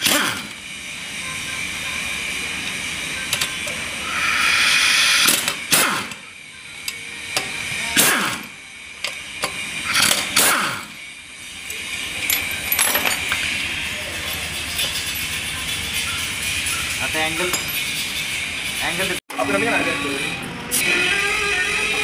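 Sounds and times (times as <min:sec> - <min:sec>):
pneumatic impact wrench hammering: 0:00.0 - 0:00.7, 0:02.6 - 0:16.2.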